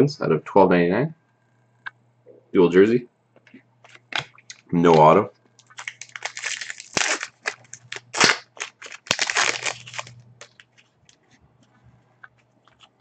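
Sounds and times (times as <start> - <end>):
foil wrapper crinkling: 4.9 - 11.2.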